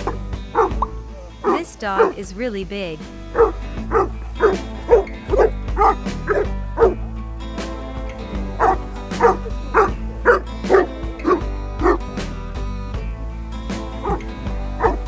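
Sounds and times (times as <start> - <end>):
dog barking: 0.0 - 0.8, 1.4 - 2.2, 3.3 - 7.0, 8.6 - 12.1, 14.0 - 15.0
background music: 0.0 - 15.0.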